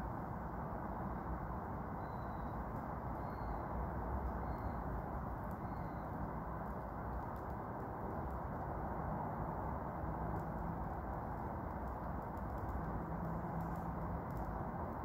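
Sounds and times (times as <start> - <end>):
outdoor background noise: 0.0 - 15.0.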